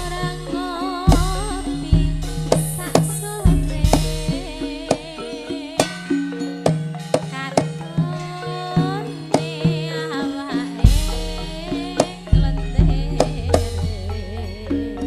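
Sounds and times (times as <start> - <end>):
woman singing into microphone: 0.0 - 6.2, 7.2 - 15.0
gamelan music: 0.0 - 15.0
hand drum strokes: 0.0 - 15.0
held metallophone notes: 0.0 - 15.0.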